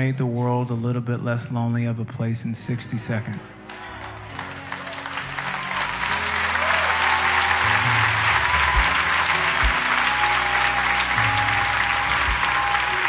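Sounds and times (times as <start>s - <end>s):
soft music with bass notes: 0.0s - 13.0s
crowd applauding: 3.3s - 13.0s.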